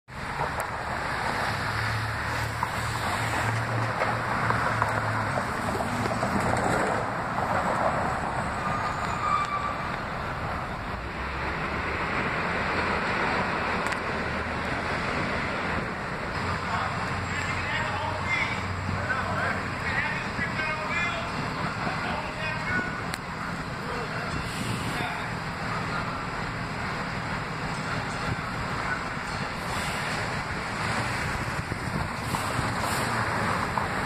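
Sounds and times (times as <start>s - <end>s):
street traffic: 0.0s - 34.0s
wind buffeting microphone: 26.3s - 34.0s.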